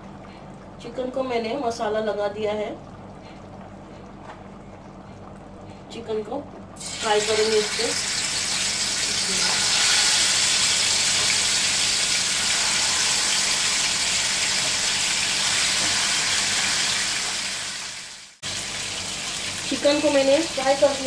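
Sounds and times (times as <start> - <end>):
chicken sizzling in hot oil: 6.8 - 21.0.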